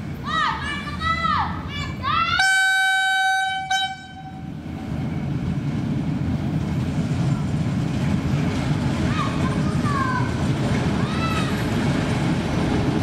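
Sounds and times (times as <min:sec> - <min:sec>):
railbus rumbling on rails: 0:00.0 - 0:13.0
train horn blast: 0:02.4 - 0:04.6.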